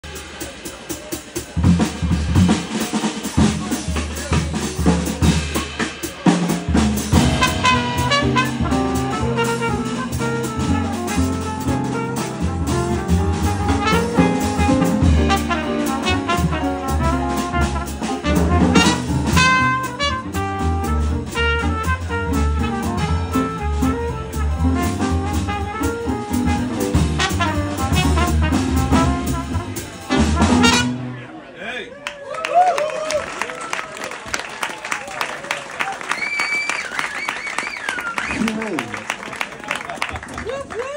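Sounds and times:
drum kit with cymbals: 0.0s - 31.2s
upright bass: 1.5s - 31.3s
trumpet melody: 7.0s - 31.3s.

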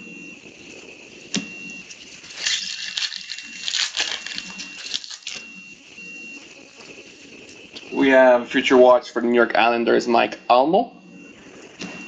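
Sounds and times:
foil wrapper crinkling and tearing: 1.9s - 5.5s.

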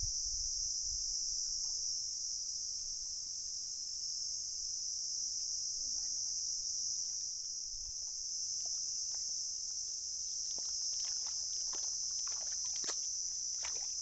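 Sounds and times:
high-pitched insect chorus: 0.0s - 14.0s
bare feet treading in mud: 7.9s - 14.0s.

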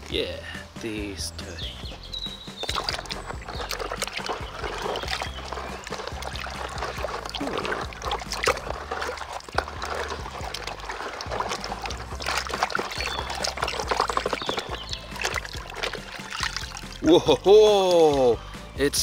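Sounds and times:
water sloshing in plastic tub: 2.2s - 18.5s
cloth scrubbing toy: 2.6s - 17.0s.

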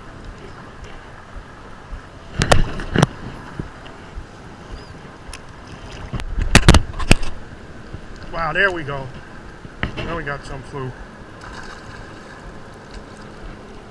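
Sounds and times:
wind on microphone: 0.0s - 8.5s
water sloshing: 0.0s - 13.9s.

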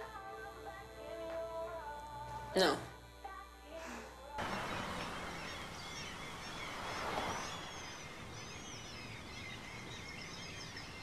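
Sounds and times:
distant traffic hiss: 4.4s - 11.0s
small birds chirping: 4.4s - 11.0s.

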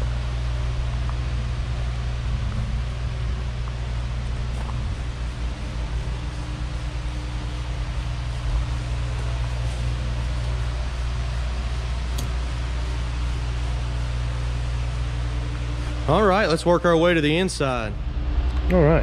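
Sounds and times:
low machine hum: 0.0s - 19.0s.

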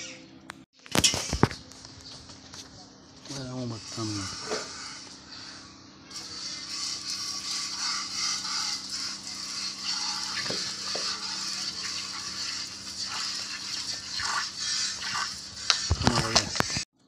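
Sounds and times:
milk squirting into steel bucket: 6.2s - 16.8s.

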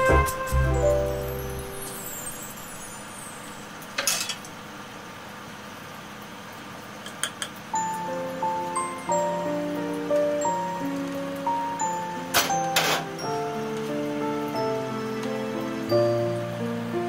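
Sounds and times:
background music: 0.0s - 2.8s, 7.8s - 17.0s.

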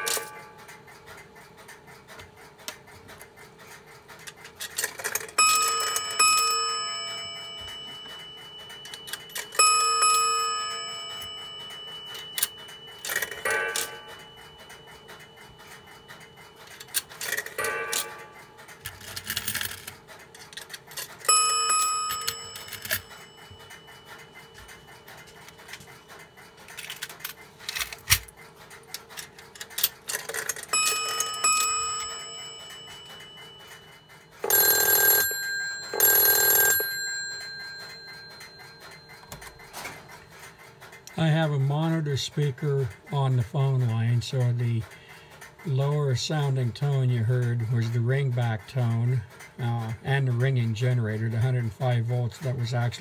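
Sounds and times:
coins striking bell and gong: 0.0s - 0.8s, 4.8s - 19.9s, 21.0s - 25.8s, 30.3s - 40.4s
payphone bell ringing: 0.0s - 0.8s, 4.8s - 19.9s, 20.9s - 26.8s, 30.1s - 40.6s.

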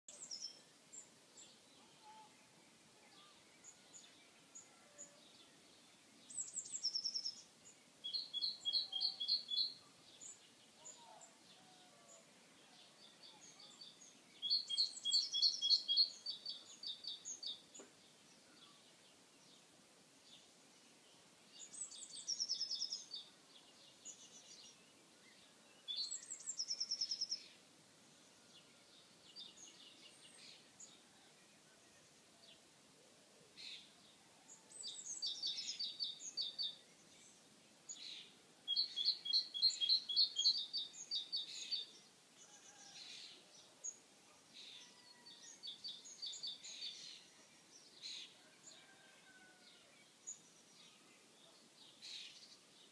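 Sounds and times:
songbirds singing: 0.0s - 52.9s
faint bird calls: 1.8s - 3.4s.

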